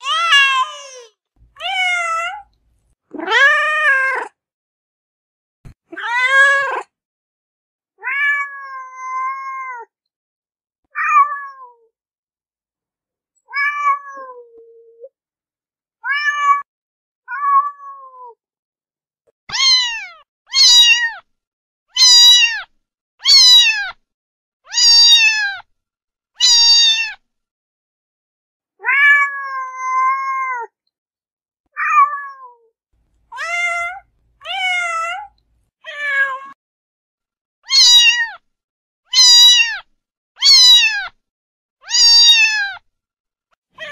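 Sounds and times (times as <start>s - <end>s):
cat meowing: 0.0s - 2.5s, 3.1s - 4.4s, 5.9s - 6.9s, 8.0s - 9.9s, 10.9s - 11.9s, 13.5s - 14.7s, 16.0s - 16.7s, 17.3s - 18.4s, 19.5s - 21.2s, 21.9s - 24.0s, 24.7s - 25.6s, 26.4s - 27.2s, 28.8s - 30.8s, 31.8s - 32.7s, 33.3s - 36.6s, 37.7s - 38.4s, 39.1s - 41.2s, 41.8s - 42.8s.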